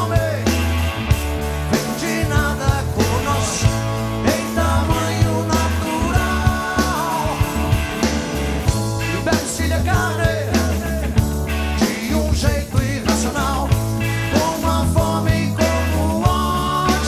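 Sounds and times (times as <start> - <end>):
man singing: 0.0 - 0.8, 1.7 - 8.1, 9.0 - 17.0
rock band playing: 0.0 - 17.0.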